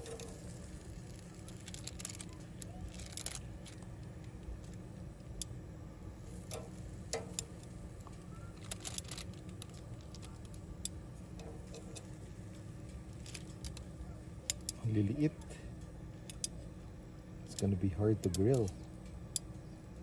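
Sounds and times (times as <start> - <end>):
utensil tapping grill grate: 0.0 - 2.5, 6.3 - 8.2, 9.3 - 15.2, 16.2 - 16.6, 17.5 - 19.6
steady low rumble: 0.0 - 20.0.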